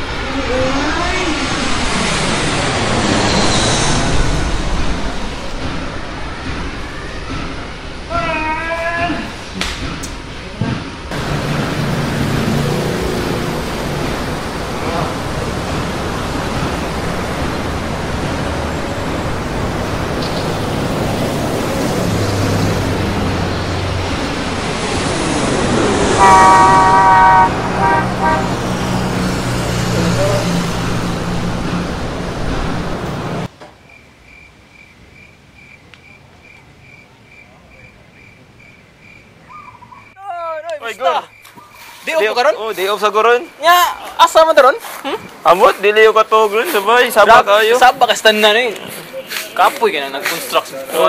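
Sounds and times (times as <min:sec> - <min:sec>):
street traffic noise: 0:00.0 - 0:51.0
car horn honking: 0:26.2 - 0:28.8
crickets chirping: 0:33.6 - 0:45.2.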